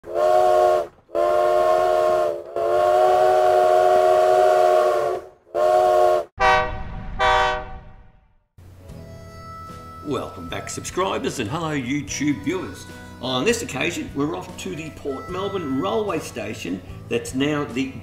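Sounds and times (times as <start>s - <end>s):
steam locomotive whistle blasts: 0.0s - 8.0s
low rumble: 6.4s - 8.5s.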